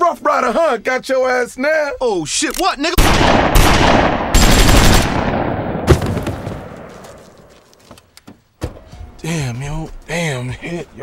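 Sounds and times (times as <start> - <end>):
rapid gunshots: 3.0 - 6.9.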